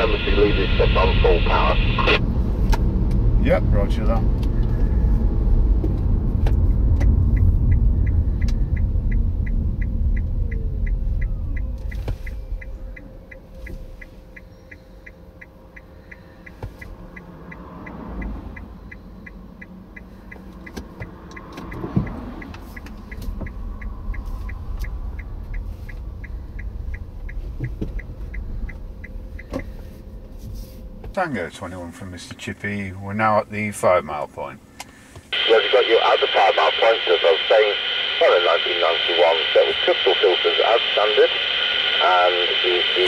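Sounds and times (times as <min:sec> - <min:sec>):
car engine idling: 0:00.0 - 0:31.1.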